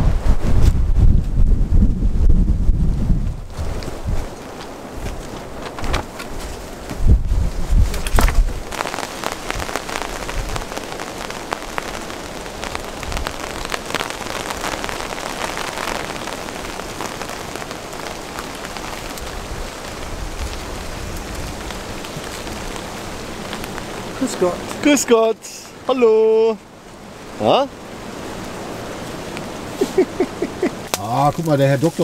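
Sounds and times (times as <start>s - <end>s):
wind rumble on microphone: 0.0s - 24.8s
rain falling: 0.0s - 32.0s.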